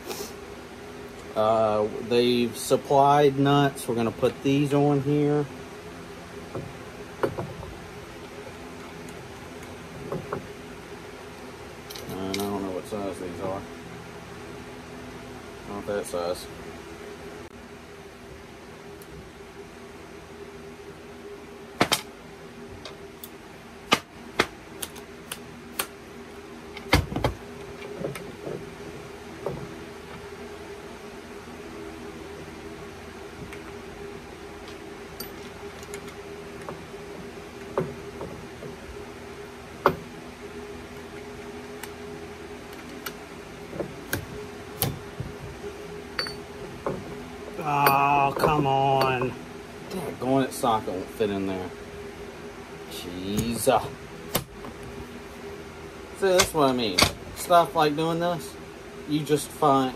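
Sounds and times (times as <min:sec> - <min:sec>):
steady low hum: 0:00.0 - 0:59.9
metal parts clinking together: 0:46.2 - 0:46.4.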